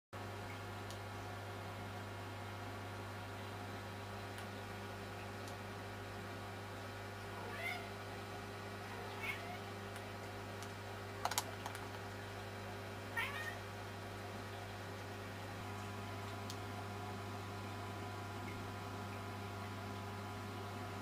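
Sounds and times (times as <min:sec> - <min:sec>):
steady low hum: 0:00.2 - 0:21.0
sharp clicks: 0:10.6 - 0:12.0.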